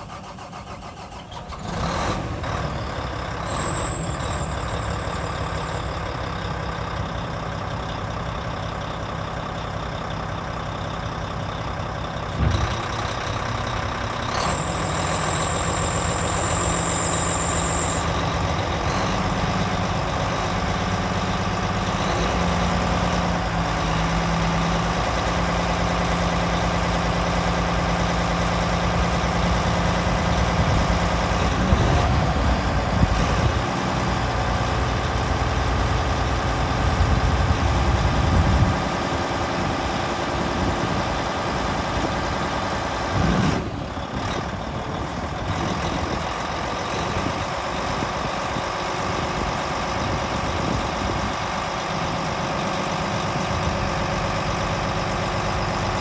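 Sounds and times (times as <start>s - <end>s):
diesel engine running: 0.0s - 56.0s
hydraulics tipping dump body: 11.9s - 26.4s.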